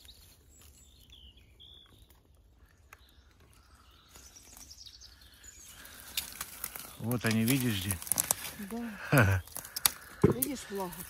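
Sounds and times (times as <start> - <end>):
faint bird chirps: 0.0 - 7.1
faint crackling rustle: 0.0 - 11.0.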